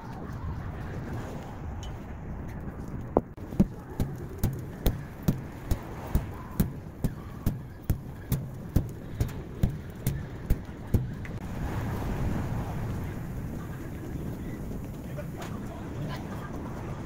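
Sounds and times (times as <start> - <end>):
low rumble of street traffic: 0.0 - 17.0
sharp evenly spaced taps: 3.5 - 11.4.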